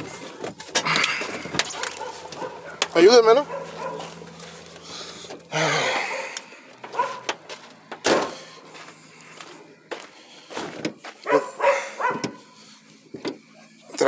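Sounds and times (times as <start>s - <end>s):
dog barking: 1.7s - 4.2s, 6.0s - 7.4s, 11.2s - 12.5s.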